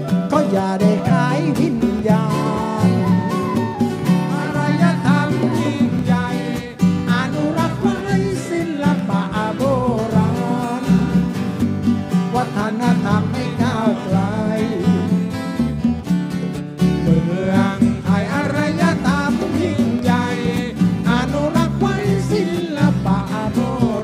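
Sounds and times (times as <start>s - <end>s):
wavering melodic lead line: 0.0s - 8.2s
repeating bass: 0.0s - 11.8s
guitars: 0.0s - 24.0s.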